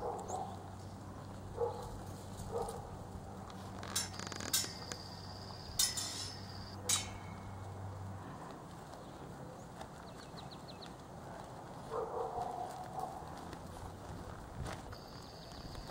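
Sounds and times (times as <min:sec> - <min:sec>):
steady low hum: 0:00.0 - 0:08.5
metallic clinks of horse tack: 0:03.4 - 0:07.9.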